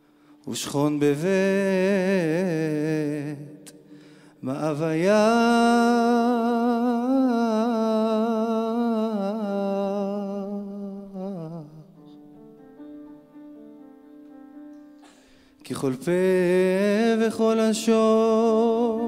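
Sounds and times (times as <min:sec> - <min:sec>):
soft piano chords: 0:00.0 - 0:19.0
man singing long note with vibrato: 0:00.5 - 0:12.0, 0:15.6 - 0:19.0.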